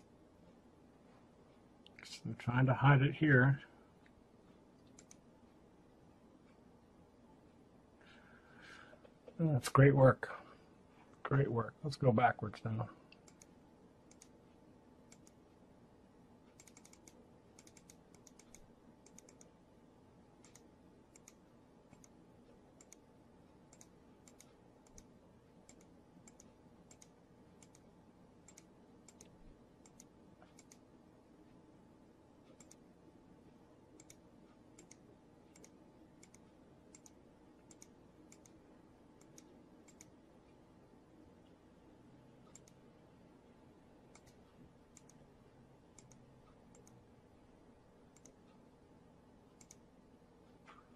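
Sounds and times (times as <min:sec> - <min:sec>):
faint low steady hum: 0:00.0 - 0:50.9
computer mouse clicking: 0:04.8 - 0:05.3, 0:13.1 - 0:14.4, 0:15.1 - 0:15.4, 0:16.5 - 0:19.6, 0:20.4 - 0:22.2, 0:22.8 - 0:23.1, 0:23.7 - 0:30.9, 0:32.5 - 0:32.9, 0:33.9 - 0:38.6, 0:39.2 - 0:40.2, 0:42.5 - 0:42.9, 0:44.1 - 0:45.2, 0:45.9 - 0:47.0, 0:48.1 - 0:48.6, 0:49.5 - 0:49.9.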